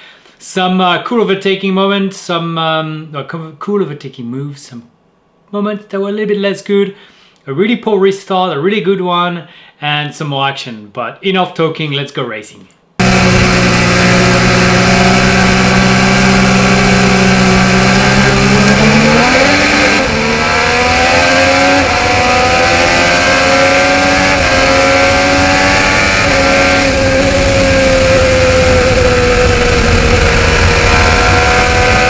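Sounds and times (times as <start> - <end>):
race car engine accelerating: 13.0 - 32.0.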